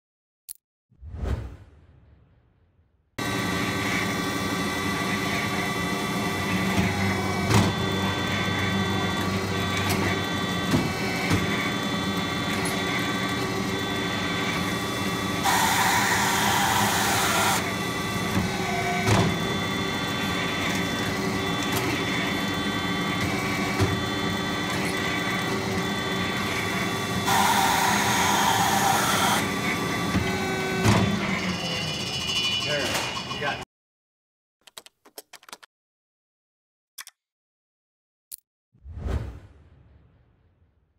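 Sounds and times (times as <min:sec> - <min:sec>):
band saw running: 0:03.2 - 0:33.6.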